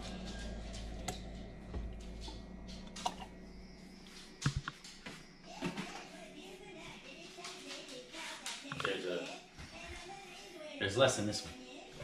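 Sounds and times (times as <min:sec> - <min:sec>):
low hum: 0:00.0 - 0:07.2.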